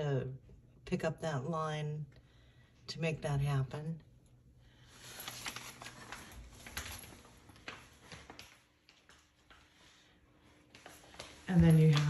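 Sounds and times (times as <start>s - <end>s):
rustling: 4.8s - 9.0s.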